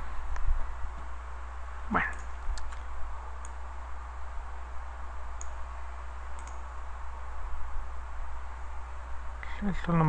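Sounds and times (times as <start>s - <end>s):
electrical hum and hiss: 0.0s - 10.0s
computer mouse clicks: 2.1s - 3.6s, 5.4s - 5.6s, 6.3s - 6.7s.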